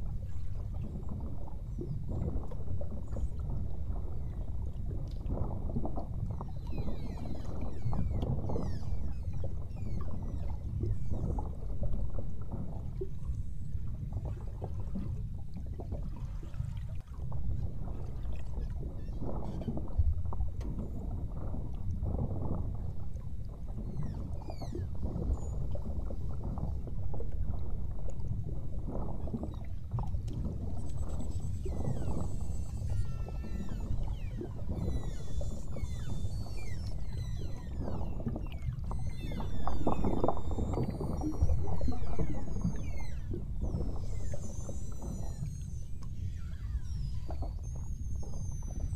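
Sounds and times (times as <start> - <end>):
underwater rush and boat noise: 0.0 - 48.9
whale whistles and chirps: 6.3 - 12.4, 18.0 - 21.1, 22.8 - 26.7, 29.0 - 48.9.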